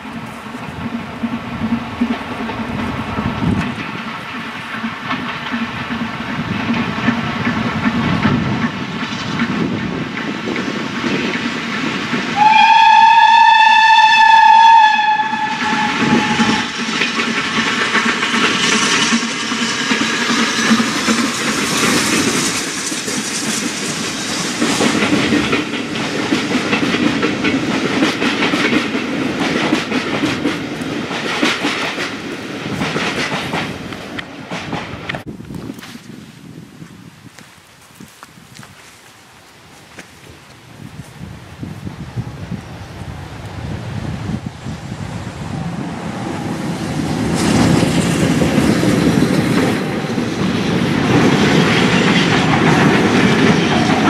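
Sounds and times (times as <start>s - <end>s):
train wheels clattering over rails: 0.0s - 36.0s, 44.3s - 54.0s
steam locomotive whistle: 12.3s - 16.9s.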